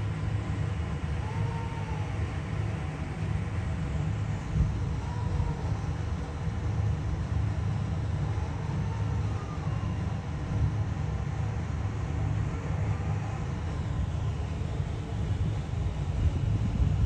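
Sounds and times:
low outdoor background rumble: 0:00.0 - 0:17.0.

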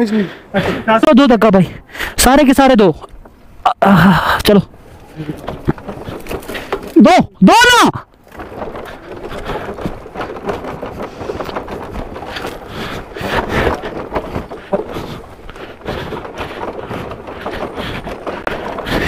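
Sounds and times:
tyres crunching on gravel: 0:04.6 - 0:07.4, 0:08.0 - 0:19.0
footsteps on gravel: 0:08.1 - 0:19.0.

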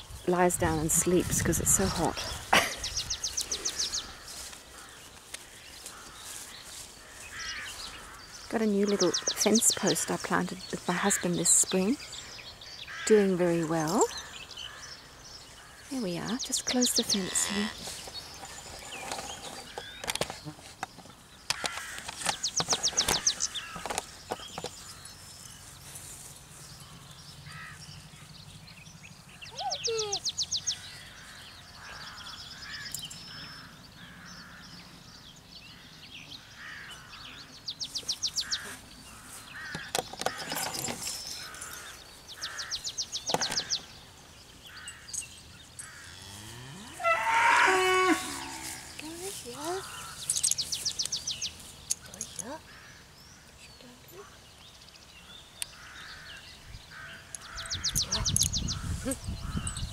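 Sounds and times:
cattle mooing: 0:46.0 - 0:49.0.

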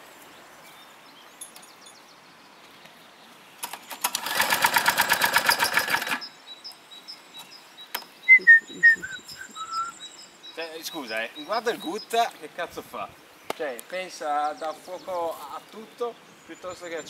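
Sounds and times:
lawn mower engine cranking: 0:03.6 - 0:06.2
bird chirps: 0:05.6 - 0:12.4, 0:14.0 - 0:17.0.

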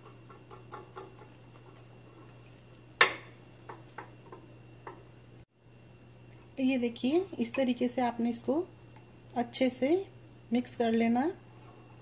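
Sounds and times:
utensil knocking on mixing bowl: 0:00.0 - 0:01.3.

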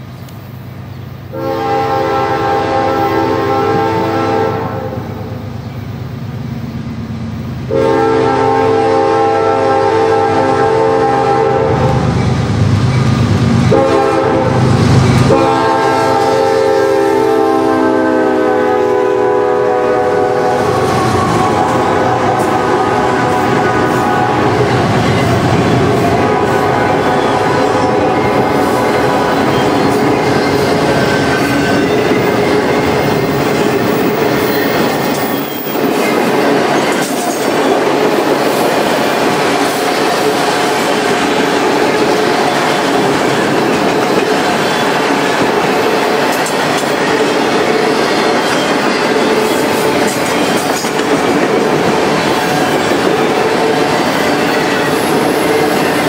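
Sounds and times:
diesel engines and train rumble: 0:00.0 - 0:56.0
train air horn blasts: 0:01.3 - 0:05.3, 0:07.7 - 0:12.1, 0:13.7 - 0:33.2, 0:52.1 - 0:56.0.

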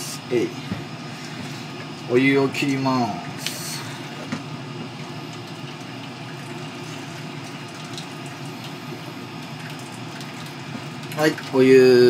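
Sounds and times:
water pouring into a sink: 0:03.3 - 0:12.0.

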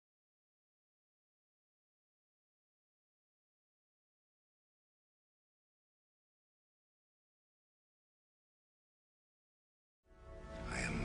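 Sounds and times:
background music: 0:10.1 - 0:11.0.

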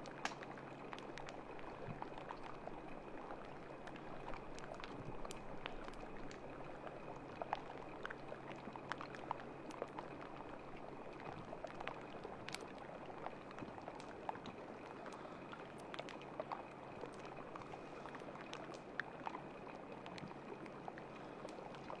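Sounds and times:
faint steady hum: 0:00.0 - 0:22.0
water lapping and trickling: 0:00.0 - 0:22.0.

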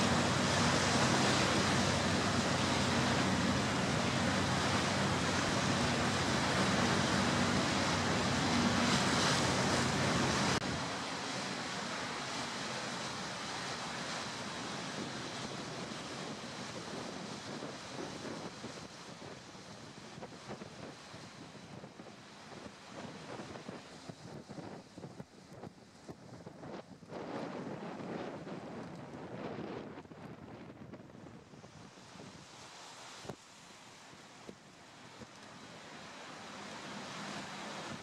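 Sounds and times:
low engine drone: 0:00.0 - 0:17.2
rushing water: 0:00.0 - 0:38.0
wind: 0:00.0 - 0:38.0.

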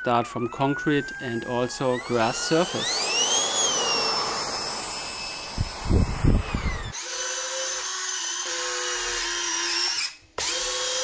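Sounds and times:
electric ducted fan whining: 0:00.0 - 0:07.0
landing gear motors whining: 0:00.0 - 0:08.2
wind gusting on microphone: 0:05.4 - 0:06.9.

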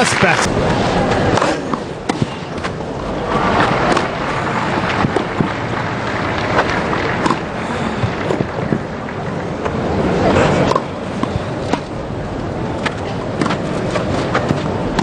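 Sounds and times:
crowd background: 0:00.0 - 0:15.0
tennis ball hit with rackets: 0:01.3 - 0:02.7, 0:03.8 - 0:04.1, 0:06.6 - 0:07.4, 0:12.8 - 0:13.6.

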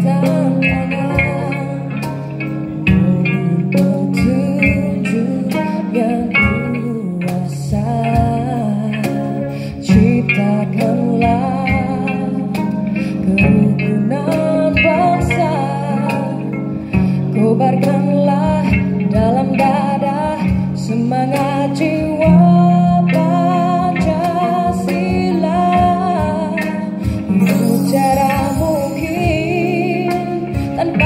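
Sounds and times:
person singing with vibrato: 0:00.0 - 0:31.0
plucked zithers: 0:27.3 - 0:30.2.

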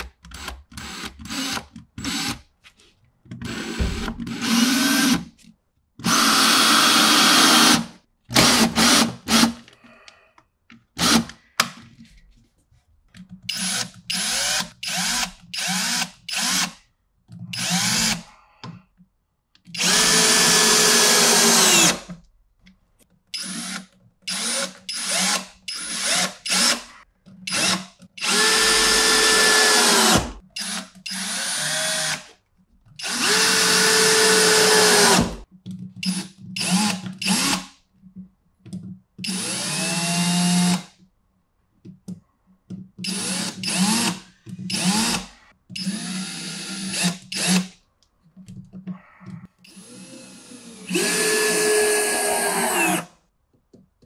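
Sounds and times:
cordless drill driving screws: 0:06.0 - 0:09.6, 0:13.5 - 0:16.8, 0:17.5 - 0:18.2, 0:19.7 - 0:22.0, 0:23.4 - 0:26.9, 0:27.5 - 0:32.3, 0:33.0 - 0:35.4, 0:36.0 - 0:37.7, 0:39.2 - 0:40.9, 0:43.0 - 0:47.7, 0:49.7 - 0:53.1.

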